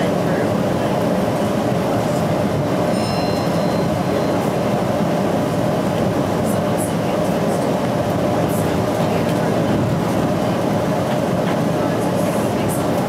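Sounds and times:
train running on track: 0:00.0 - 0:13.0.

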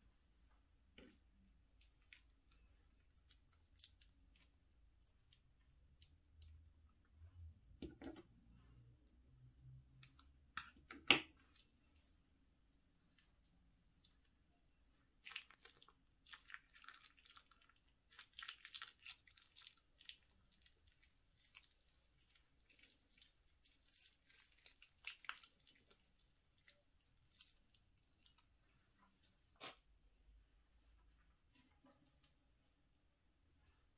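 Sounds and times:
slime squishing and crackling: 0:01.7 - 0:06.7, 0:11.2 - 0:28.6.

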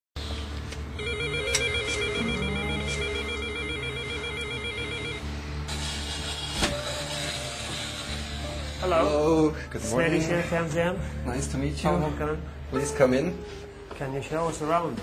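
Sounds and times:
electronic ringer warbling: 0:01.0 - 0:05.2.

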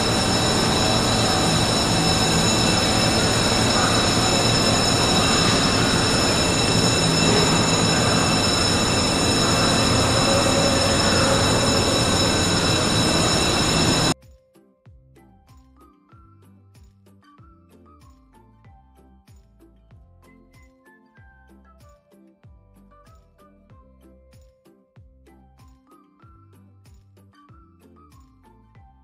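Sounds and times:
high whining tones: 0:00.0 - 0:14.2
loud machinery noise: 0:00.0 - 0:14.2.

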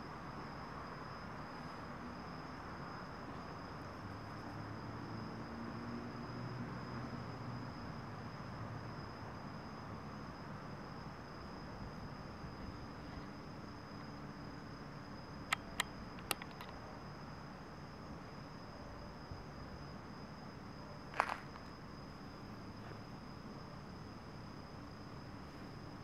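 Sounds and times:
sharp clicks: 0:15.5 - 0:16.8.

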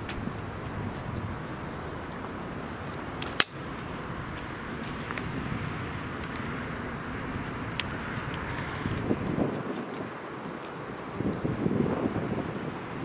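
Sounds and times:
outdoor background noise: 0:00.0 - 0:13.0
sharp click: 0:03.2 - 0:03.6.

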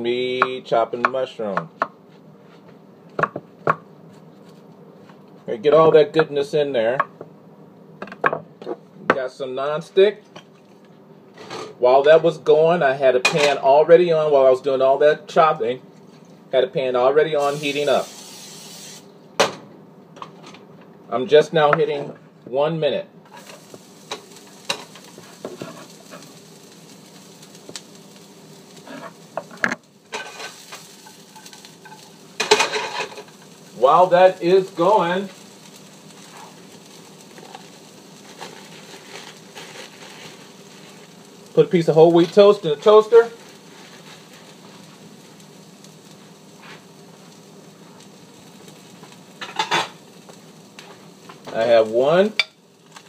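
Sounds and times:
faint sizzle: 0:08.5 - 0:19.3, 0:20.4 - 0:53.0
spatula scraping frying pan: 0:23.3 - 0:26.4, 0:28.8 - 0:33.4, 0:37.4 - 0:41.1, 0:43.4 - 0:44.8.

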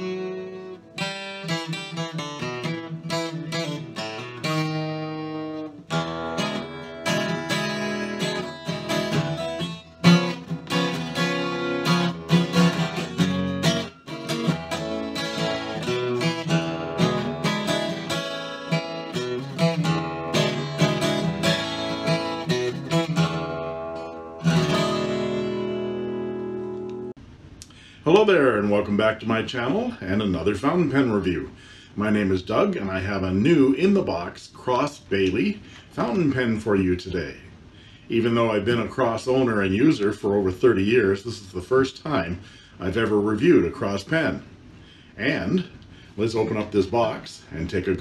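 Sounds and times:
acoustic guitar playing solo: 0:00.0 - 0:27.2.

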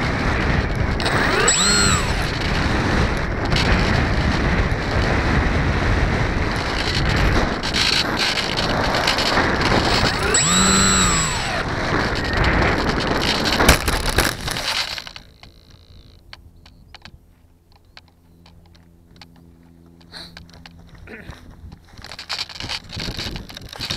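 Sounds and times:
wind rush: 0:00.0 - 0:15.2
whine rising and falling: 0:00.0 - 0:17.1
motor noise: 0:00.0 - 0:23.9
faint ticks and rustles: 0:14.5 - 0:23.9.

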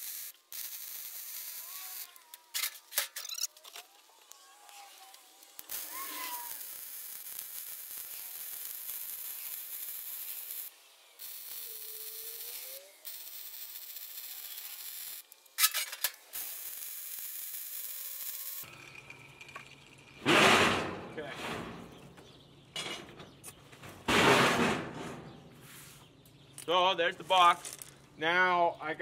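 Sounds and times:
welding arc striking burst: 0:00.0 - 0:03.3, 0:05.3 - 0:18.6
welding arc crackling hiss: 0:00.0 - 0:18.8.

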